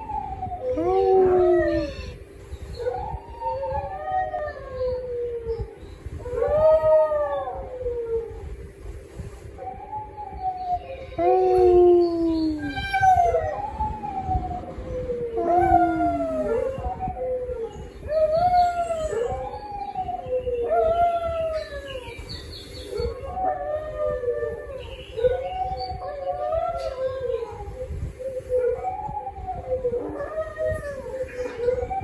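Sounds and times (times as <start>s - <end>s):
small dog howling: 9.7s - 22.2s.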